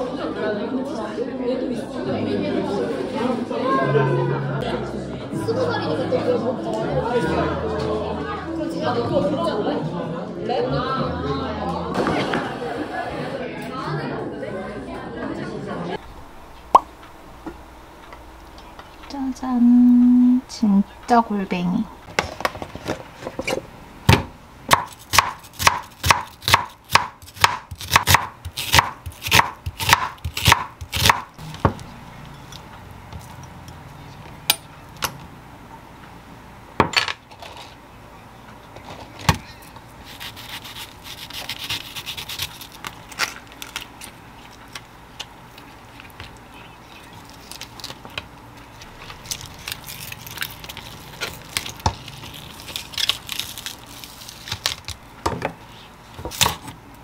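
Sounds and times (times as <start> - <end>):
knife chopping on wooden board: 24.1 - 31.8.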